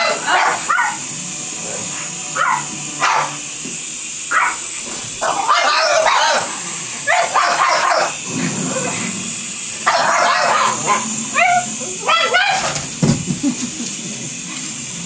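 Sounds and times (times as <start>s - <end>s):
dog yelping: 0.0s - 1.0s, 2.4s - 3.3s, 4.3s - 4.6s, 5.2s - 6.5s, 7.1s - 8.2s, 9.9s - 12.9s
dogs barking hoarsely: 0.0s - 1.1s, 2.2s - 3.4s, 4.3s - 9.1s, 9.8s - 12.9s.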